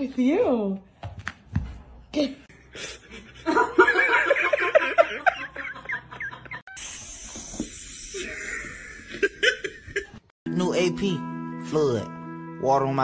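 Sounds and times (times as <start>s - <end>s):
person laughing: 8.2s - 10.3s.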